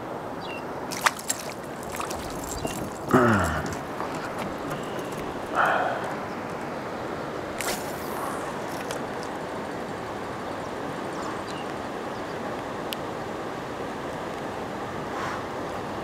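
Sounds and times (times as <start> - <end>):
fishing line swish: 0.9 - 3.0, 7.5 - 9.4
lapping water: 0.9 - 9.7
wind on microphone: 1.5 - 10.2.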